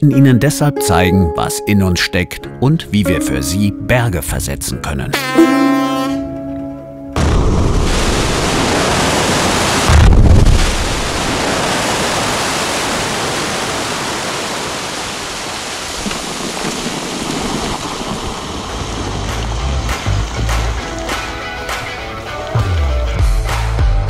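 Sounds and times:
rock blast boom: 7.2 - 11.7
rumble of falling rock: 7.2 - 12.4, 15.8 - 20.5.

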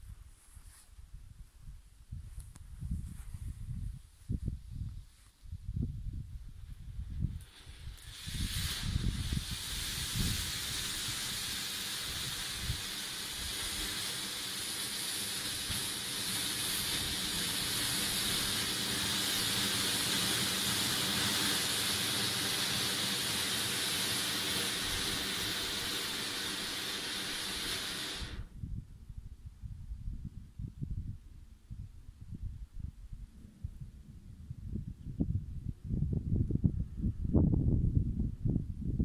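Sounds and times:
firework fountain hissing: 7.0 - 28.5.

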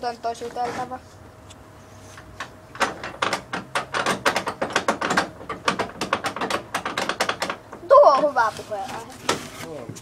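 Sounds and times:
clothing rubbing against phone: 8.4 - 9.7.

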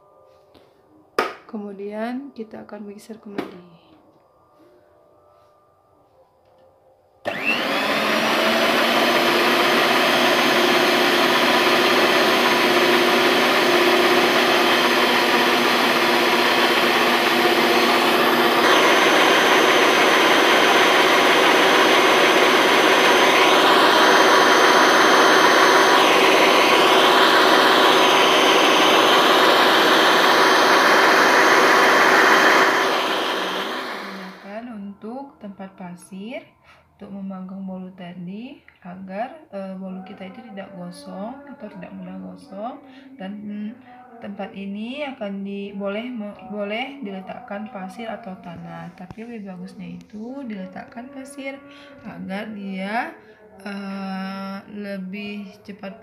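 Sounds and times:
stand mixer running: 7.3 - 34.5.

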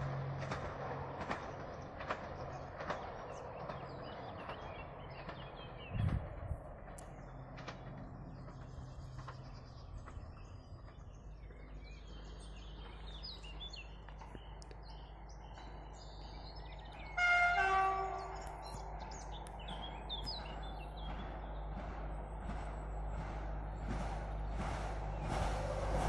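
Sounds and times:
train low rumble: 0.0 - 26.0
birds chirping: 0.8 - 25.6
two-note train horn: 17.1 - 18.5.

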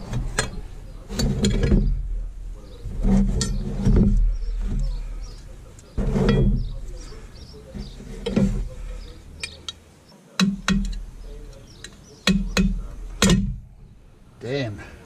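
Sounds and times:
hammer tapping metal punch: 10.4 - 11.1, 11.8 - 13.6.

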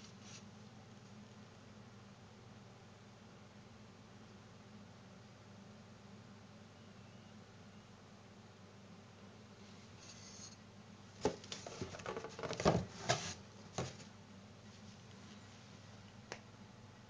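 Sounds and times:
handling knocks and rustling: 11.2 - 14.1.

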